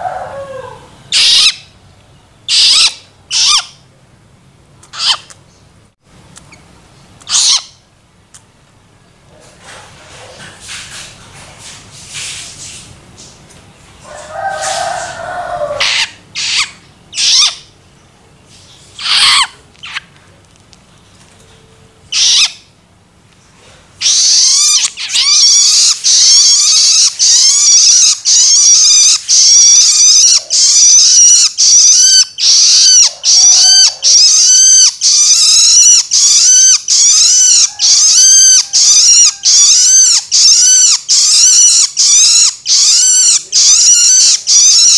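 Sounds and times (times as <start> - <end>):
young bird begging calls: 22.1 - 22.6, 24.0 - 44.9.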